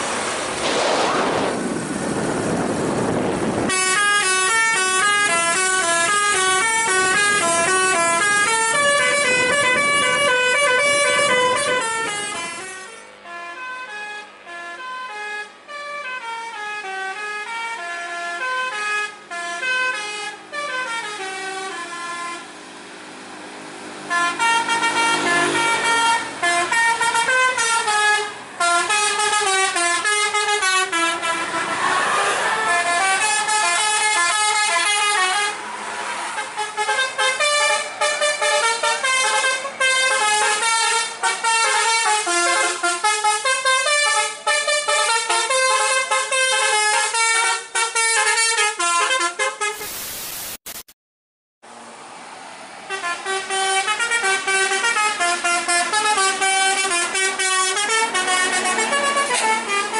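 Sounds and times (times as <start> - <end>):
rush of noise: 0.0 - 3.7, 49.8 - 50.8
multi-tone bus horn melody: 2.4 - 50.2, 52.8 - 59.9.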